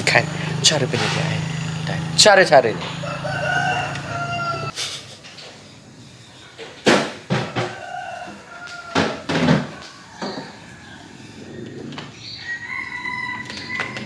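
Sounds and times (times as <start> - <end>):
faint rooster crowing: 2.9 - 4.8, 7.4 - 14.0
sharp knocks and thumps: 6.6 - 8.0, 8.9 - 10.6.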